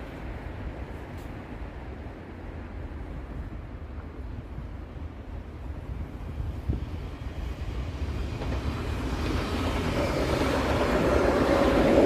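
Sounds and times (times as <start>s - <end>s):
electric train passing: 0.0s - 12.0s
wind rumble on microphone: 0.0s - 12.0s.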